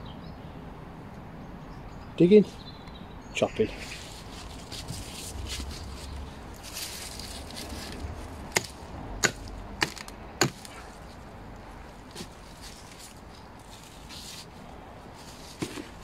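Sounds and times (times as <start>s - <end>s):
scraping and rustling: 3.7s - 16.0s
mattock chopping soil: 6.6s - 11.0s, 12.1s - 13.0s, 15.5s - 16.0s.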